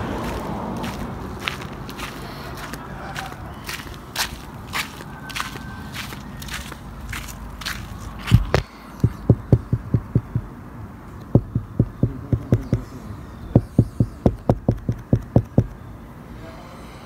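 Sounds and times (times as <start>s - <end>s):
soft low thumps: 8.2s - 10.5s, 11.3s - 12.9s, 13.5s - 15.7s.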